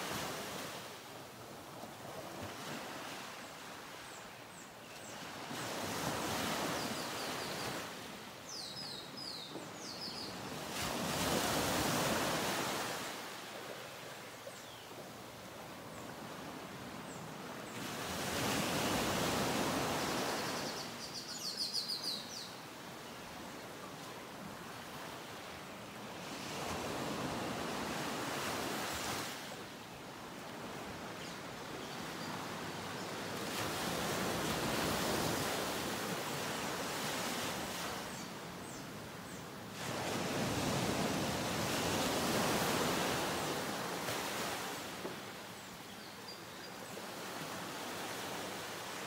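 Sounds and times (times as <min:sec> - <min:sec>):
ocean surf washing ashore: 0:00.0 - 0:03.4.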